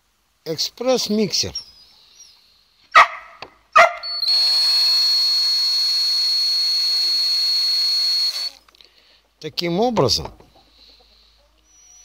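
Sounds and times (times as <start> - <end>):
dog barking: 2.9 - 4.0
cordless drill whining: 4.0 - 8.8.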